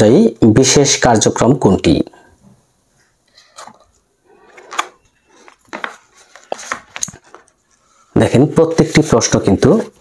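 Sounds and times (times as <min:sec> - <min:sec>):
book pages flipping: 0:03.2 - 0:08.0.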